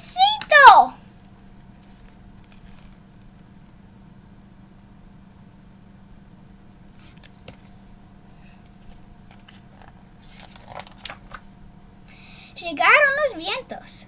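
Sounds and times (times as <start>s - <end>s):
low steady hum: 0.0s - 14.0s
book pages turning: 1.2s - 3.0s, 8.8s - 11.5s.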